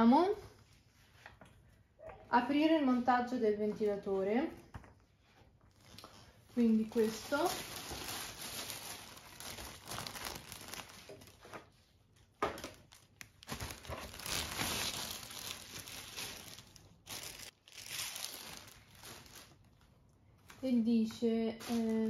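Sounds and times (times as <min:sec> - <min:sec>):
plastic film crinkling: 0:05.7 - 0:22.0.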